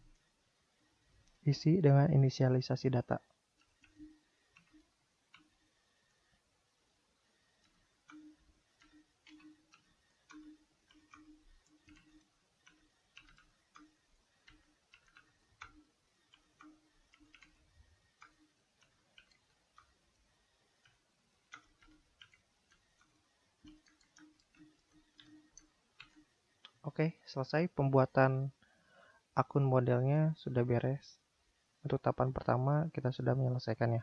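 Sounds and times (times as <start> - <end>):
faint keyboard typing: 3.2 - 6.3, 7.4 - 26.9.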